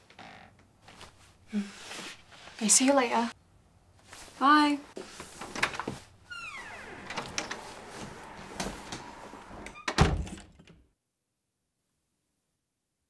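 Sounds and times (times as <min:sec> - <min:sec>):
door creaking: 0:00.0 - 0:00.7, 0:05.4 - 0:10.9
door closing thud: 0:05.6 - 0:10.8.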